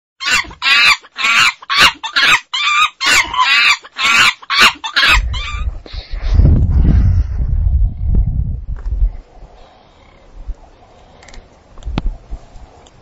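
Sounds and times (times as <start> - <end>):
chicken clucking: 0.2 - 5.7
low rumble: 5.2 - 11.3.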